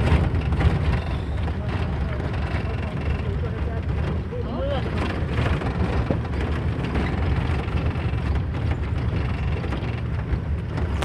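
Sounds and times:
vehicle engine and tyre rumble: 0.0 - 11.0.

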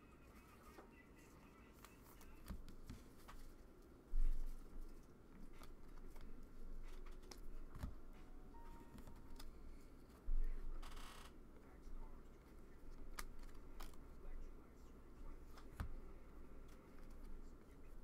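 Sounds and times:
trading cards clicking and rustling: 1.7 - 11.2, 12.4 - 14.4.

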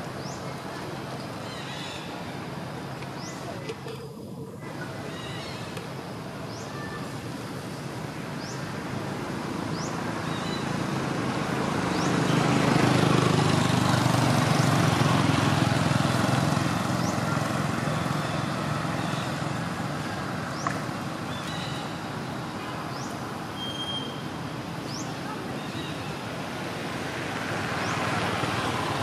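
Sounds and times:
passing vehicle rumble: 0.0 - 29.0.

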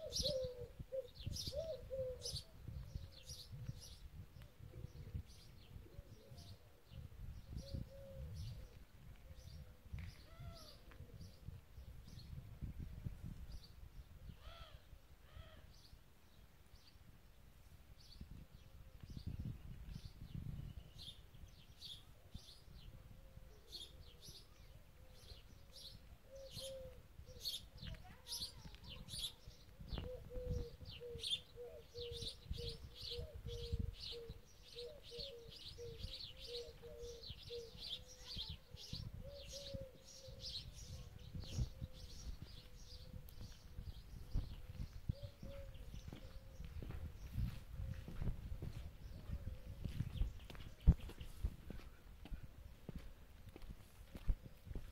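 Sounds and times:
dove cooing: 0.0 - 3.2, 7.6 - 9.7, 25.2 - 27.9, 28.5 - 43.6, 44.3 - 47.0, 49.1 - 50.0
birds chirping and singing: 0.0 - 4.0, 19.1 - 53.0.

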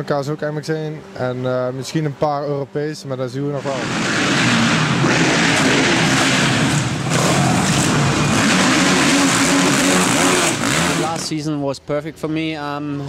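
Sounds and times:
motorcycle engines revving: 3.4 - 11.4
steady rushing noise: 3.5 - 11.5.

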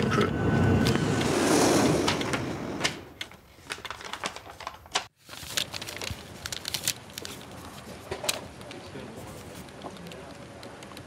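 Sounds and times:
paper crinkling: 3.3 - 10.6.

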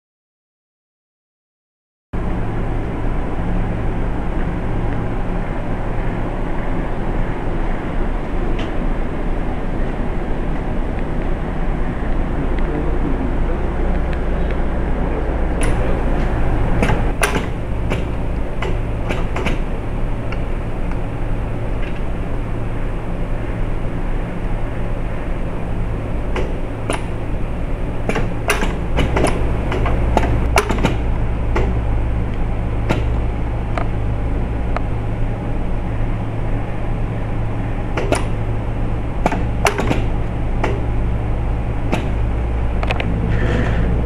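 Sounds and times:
machine humming: 2.2 - 44.0
pneumatic machine clicks: 16.8 - 19.7, 26.4 - 27.2, 28.0 - 31.8, 38.0 - 38.4, 39.2 - 40.8.

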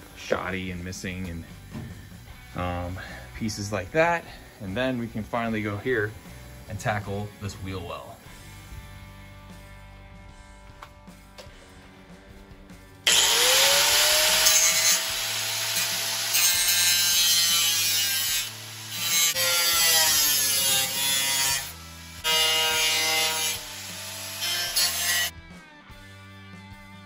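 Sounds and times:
angle grinder grinding metal: 13.0 - 25.3.

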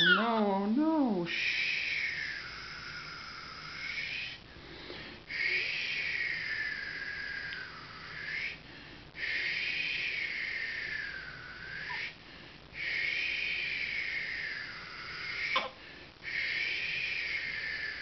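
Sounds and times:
baby screaming: 0.0 - 0.3, 15.5 - 15.7.

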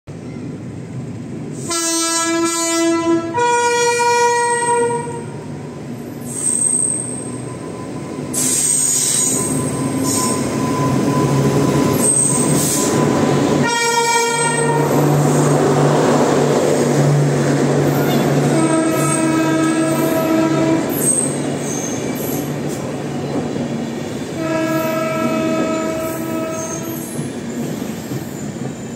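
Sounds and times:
train rolling past rumble: 0.1 - 28.9
two-tone locomotive horn: 1.6 - 5.5, 13.6 - 15.0, 18.0 - 21.1, 24.4 - 27.0
high wheel squeals: 6.2 - 13.4, 20.9 - 22.5.

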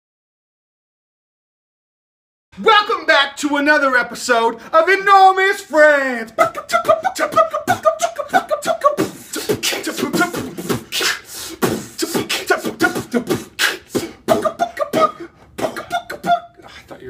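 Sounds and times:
person singing pitched syllables: 4.6 - 17.0
beatboxing: 6.3 - 17.0.

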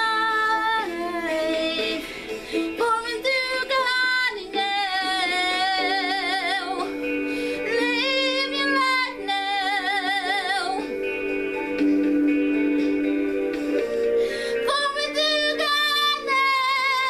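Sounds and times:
woman singing worship song: 0.0 - 10.9, 14.4 - 17.0
backing track sustained chords: 0.0 - 17.0.

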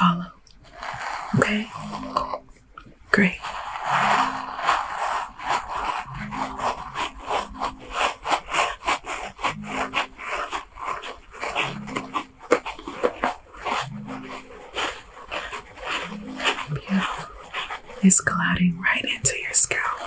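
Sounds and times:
brush scrubbing hair: 0.0 - 20.0.

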